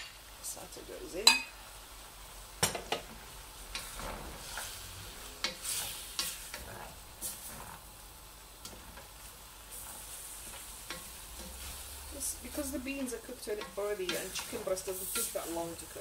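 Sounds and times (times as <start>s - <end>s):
food sizzling in a pan: 0.0s - 16.0s
spoon scraping and knocking pan: 2.6s - 7.8s, 8.6s - 16.0s.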